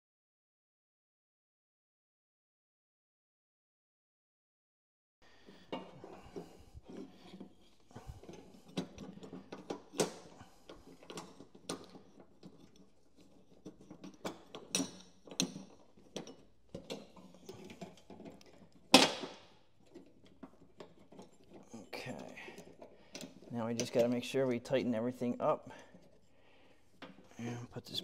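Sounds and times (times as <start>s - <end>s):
belt clicking and rubbing on pulleys: 5.3s - 27.4s.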